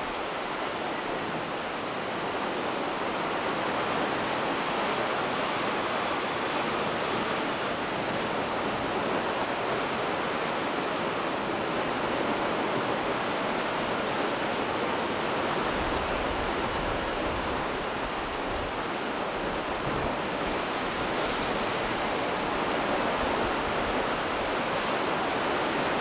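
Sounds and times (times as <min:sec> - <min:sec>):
sea surf: 0:00.0 - 0:26.0.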